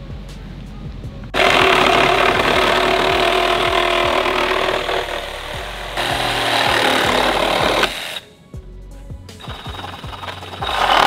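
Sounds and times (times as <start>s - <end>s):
reciprocating saw cutting metal: 1.4s - 8.3s, 9.4s - 11.0s.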